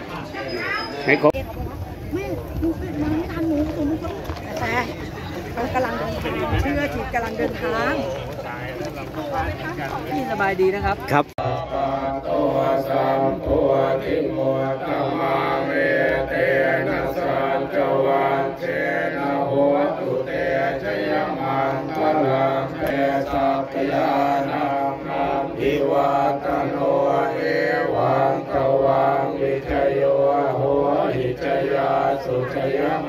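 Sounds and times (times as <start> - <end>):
voices chanting in a drone: 11.4 - 33.0.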